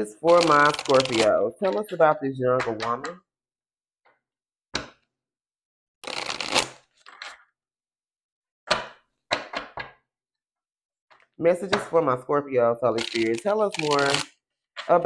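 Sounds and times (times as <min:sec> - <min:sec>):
deck tapped and squared: 0:04.8 - 0:05.0
cards riffling: 0:13.0 - 0:14.3
deck clicking: 0:13.0 - 0:14.3.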